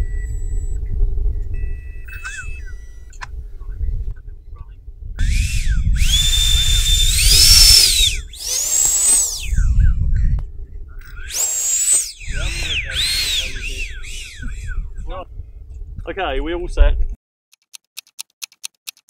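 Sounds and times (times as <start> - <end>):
electric fan motors whining: 0.0 - 15.2
low rumble: 0.0 - 17.2.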